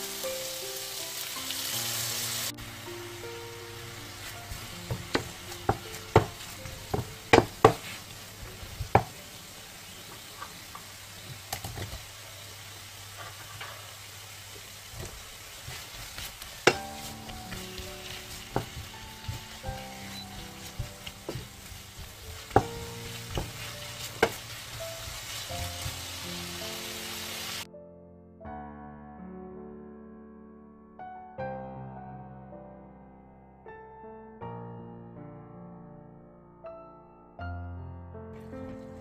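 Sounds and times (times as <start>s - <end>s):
meat sizzling in a frying pan: 0.0s - 27.7s
wooden spatula clicking and knocking: 4.5s - 9.3s, 10.1s - 12.0s, 14.9s - 26.8s.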